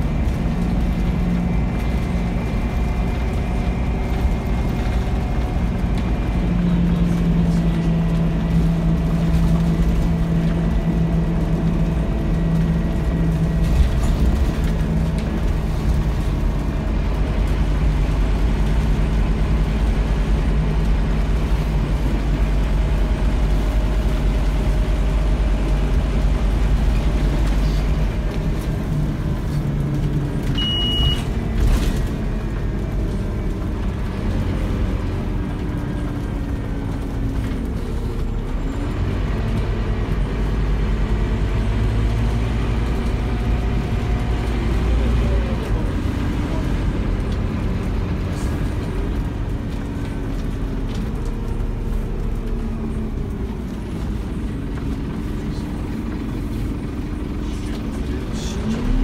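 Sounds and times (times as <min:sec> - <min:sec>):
bus diesel engine running: 0:00.0 - 0:59.0
short high beep: 0:30.6 - 0:31.2.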